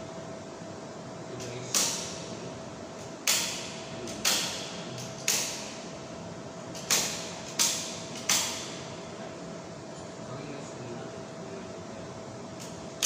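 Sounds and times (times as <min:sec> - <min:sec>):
circuit breakers snapping clicks: 0:01.4 - 0:02.2, 0:03.2 - 0:05.8, 0:06.7 - 0:08.8.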